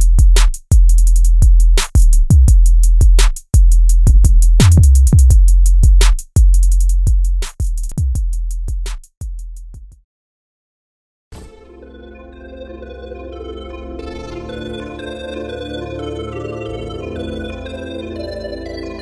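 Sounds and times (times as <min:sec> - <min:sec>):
electronic dance music beat: 0:00.0 - 0:09.1.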